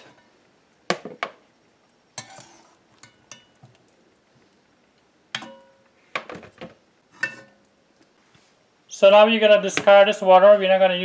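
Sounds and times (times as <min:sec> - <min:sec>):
metal spoon clinking on pot: 0:02.2 - 0:03.7, 0:05.4 - 0:05.8.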